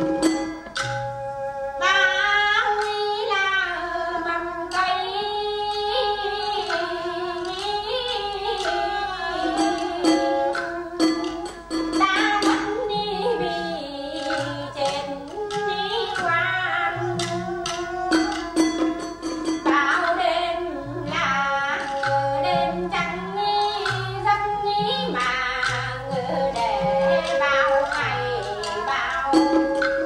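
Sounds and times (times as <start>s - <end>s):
plucked strings: 0.0s - 1.7s, 6.4s - 30.0s
person singing: 19.7s - 30.0s.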